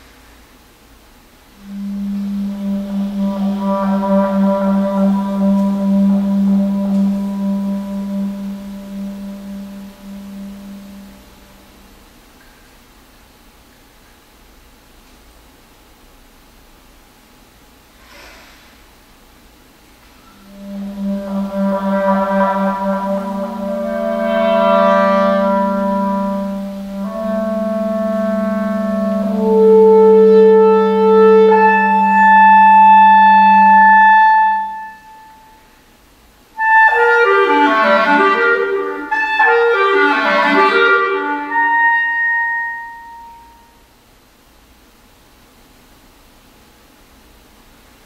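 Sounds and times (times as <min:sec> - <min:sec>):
low electronic drone: 0:01.5 - 0:12.1, 0:20.2 - 0:35.6
clarinet notes: 0:01.5 - 0:12.5, 0:20.2 - 0:35.8, 0:36.6 - 0:43.9.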